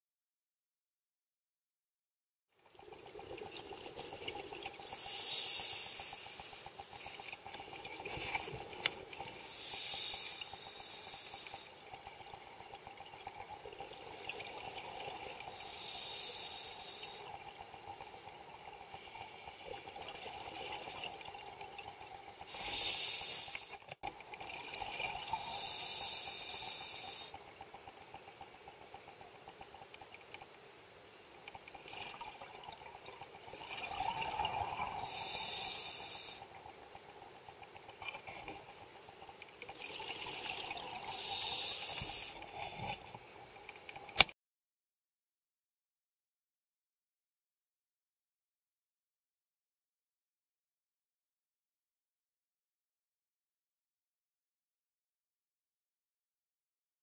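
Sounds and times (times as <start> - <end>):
faint steady hum: 2.6 - 44.2.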